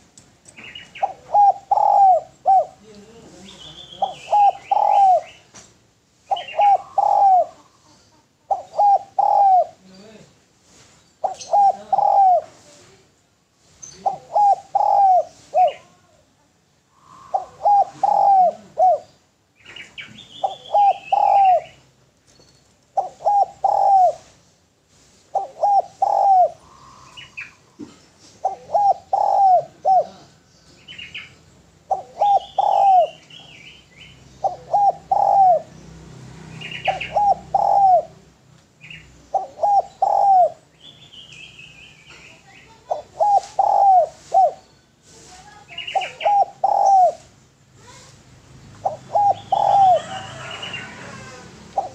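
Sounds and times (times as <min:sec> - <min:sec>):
small birds chirping: 0:00.0 - 0:51.9
dove cooing: 0:00.6 - 0:02.9, 0:03.8 - 0:05.5, 0:06.3 - 0:10.1, 0:11.2 - 0:12.7, 0:14.0 - 0:16.2, 0:16.9 - 0:21.8, 0:22.9 - 0:24.4, 0:25.3 - 0:30.4, 0:31.8 - 0:33.6, 0:34.4 - 0:35.8, 0:36.6 - 0:40.7, 0:42.7 - 0:44.6, 0:45.5 - 0:48.2, 0:48.8 - 0:51.9.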